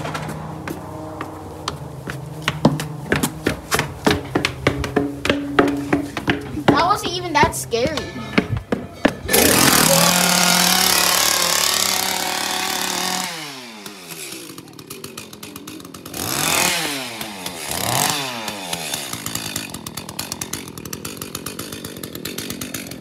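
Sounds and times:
small engine revving: 9.3s - 23.0s.

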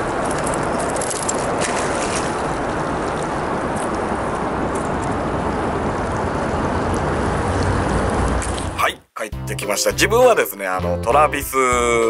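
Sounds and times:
rushing water and boat: 0.0s - 8.8s.

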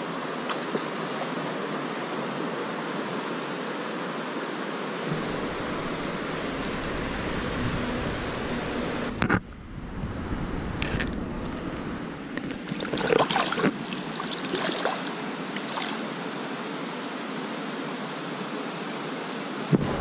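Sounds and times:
river water rushing: 0.0s - 9.3s, 12.1s - 18.7s
fish splashing in water: 12.5s - 16.1s.

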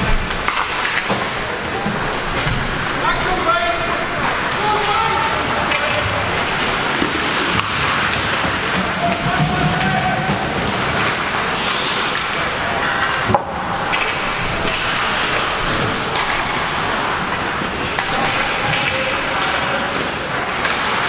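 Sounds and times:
ice hockey play noise: 0.0s - 21.0s
sharp crack: 11.0s - 19.6s.

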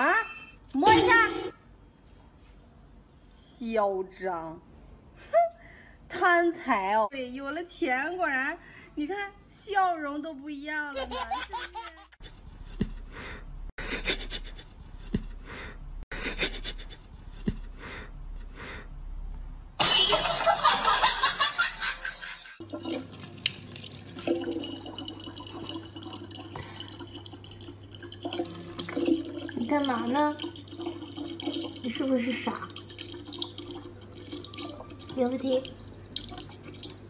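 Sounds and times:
water running into plastic bottle: 22.6s - 37.0s.

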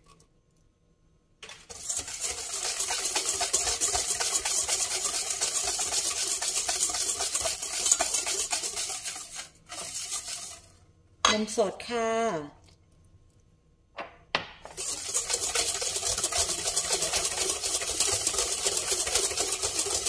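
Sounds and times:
wire whisk beating batter in bowl: 1.4s - 10.8s, 14.7s - 20.0s.

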